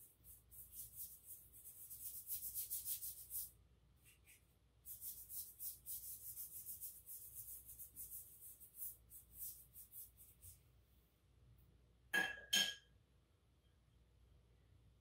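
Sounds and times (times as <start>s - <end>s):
paintbrush scrubbing on wet paper: 0.0s - 10.9s.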